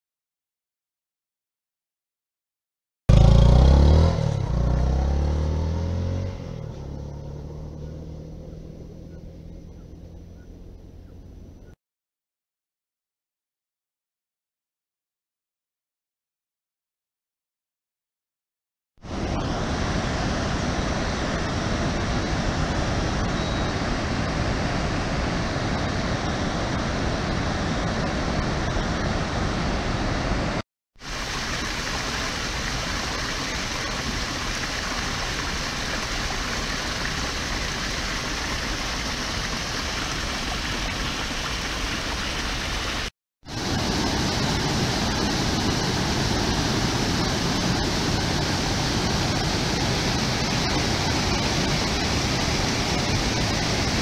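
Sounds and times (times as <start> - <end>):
water rushing over rocks: 19.0 - 54.0.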